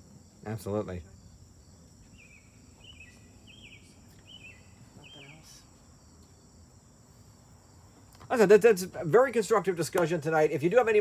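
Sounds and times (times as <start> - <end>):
crickets chirring: 0.0 - 11.0
bird chirping: 1.2 - 5.7.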